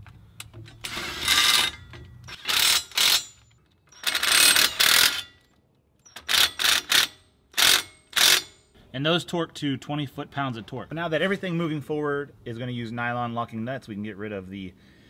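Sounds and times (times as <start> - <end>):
cordless impact wrench bursts: 0.8 - 5.4, 6.1 - 8.6.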